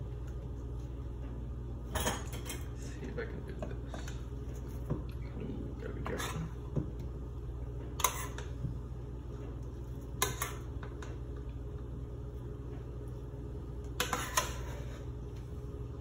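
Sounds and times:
steady low hum: 0.0s - 16.0s
spatula scraping metal pot: 8.0s - 8.4s, 14.0s - 15.1s.

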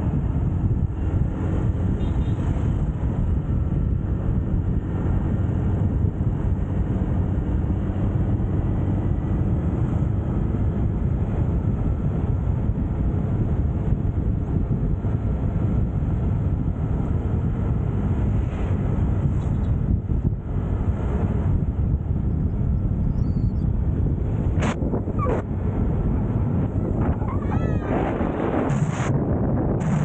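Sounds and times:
wind rumble on microphone: 0.0s - 30.0s
motor scooter engine drone: 19.8s - 30.0s.

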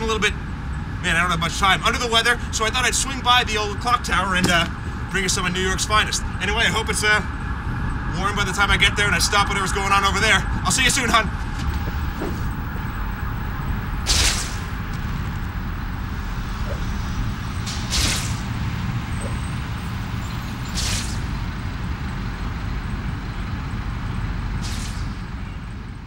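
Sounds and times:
city traffic rumble: 0.0s - 26.0s
short hisses: 20.7s - 21.3s, 24.6s - 25.2s.

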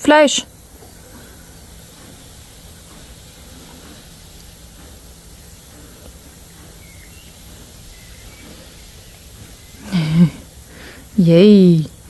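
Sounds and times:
even hiss: 0.0s - 12.0s
faint constant hum: 0.0s - 12.0s.

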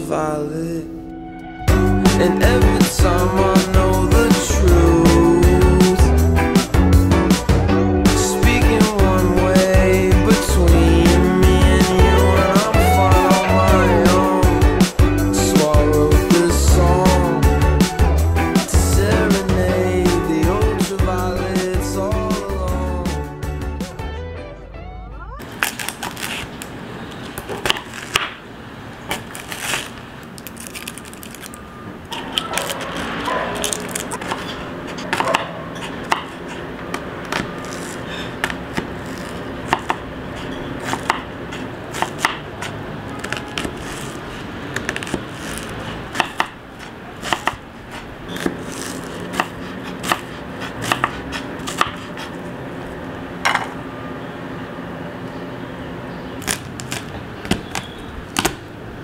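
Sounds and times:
knife chopping on wooden board: 35.0s - 36.5s, 37.3s - 40.0s, 40.8s - 42.8s, 44.8s - 47.6s, 48.3s - 52.1s.

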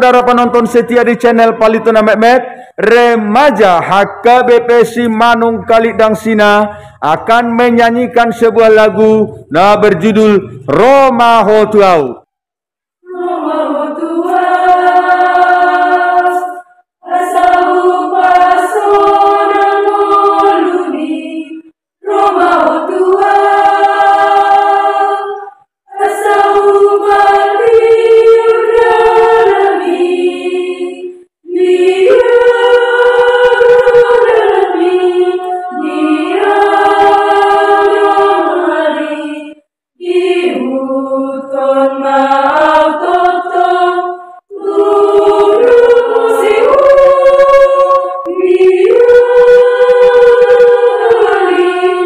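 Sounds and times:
choir singing a hymn: 13.0s - 52.0s.

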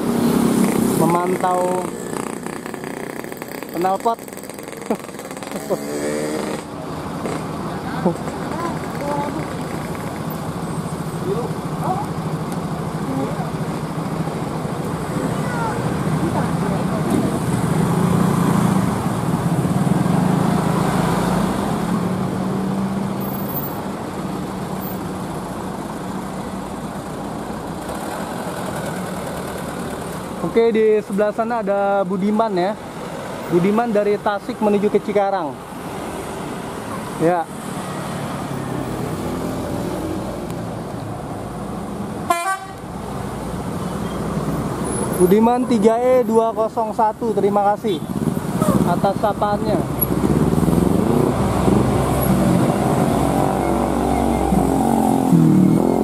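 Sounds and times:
minibus engine running: 0.0s - 30.6s
motorcycles passing: 0.0s - 56.0s
bus horn toot: 42.3s - 42.9s.

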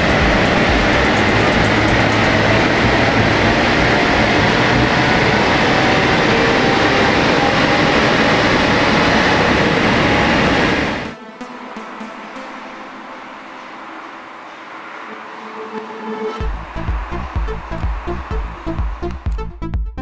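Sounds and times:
car engine running hard: 0.0s - 11.0s
fan noise: 0.0s - 11.1s, 16.4s - 19.4s.

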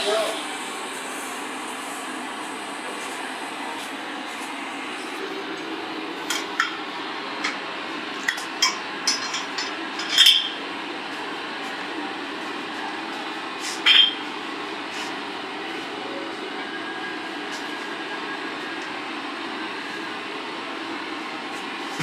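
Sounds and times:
steady background hum: 0.0s - 22.0s
metal tools clinking: 8.6s - 10.6s.

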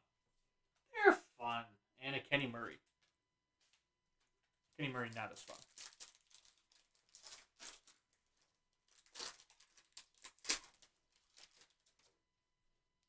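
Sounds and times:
plastic wrapper crinkling and tearing: 4.7s - 12.2s.

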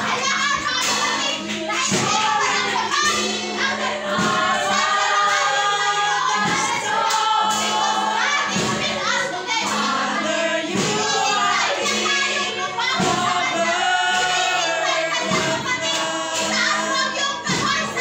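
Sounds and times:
congregation singing: 0.0s - 18.0s
instrumental accompaniment: 0.0s - 18.0s.

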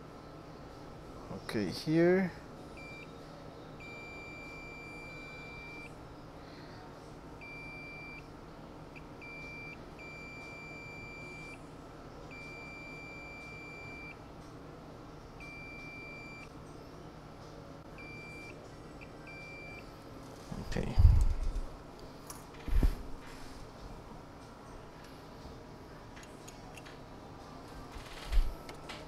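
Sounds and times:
multimeter continuity beeps: 2.8s - 3.1s, 3.8s - 6.0s, 7.4s - 8.3s, 8.9s - 11.6s, 12.3s - 14.2s, 15.4s - 16.5s, 18.0s - 19.9s.

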